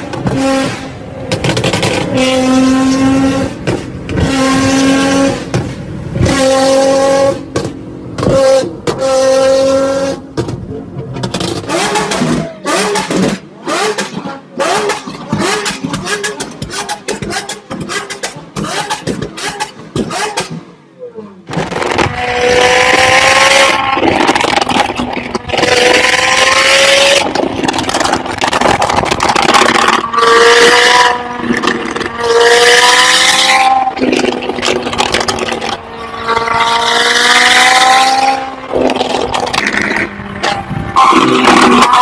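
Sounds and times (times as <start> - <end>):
sports car accelerating hard: 21.5 - 42.0.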